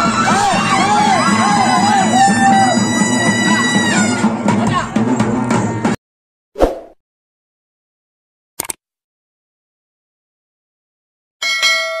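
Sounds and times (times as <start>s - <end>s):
quick click: 8.6s - 8.8s.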